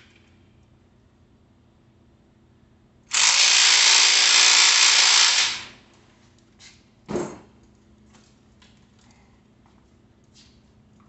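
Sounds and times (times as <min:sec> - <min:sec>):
cordless drill driving a bolt: 0:03.1 - 0:05.7.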